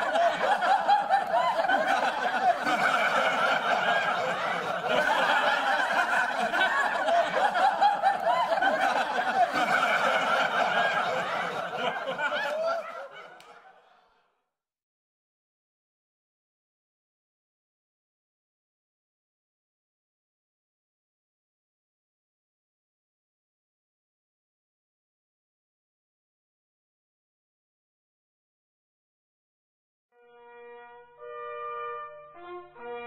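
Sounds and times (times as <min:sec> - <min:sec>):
crowd talking and laughing: 0:00.0 - 0:14.0.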